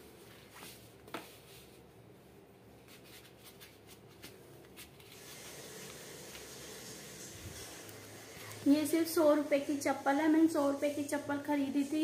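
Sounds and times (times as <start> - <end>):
faint hiss: 5.2 - 11.3.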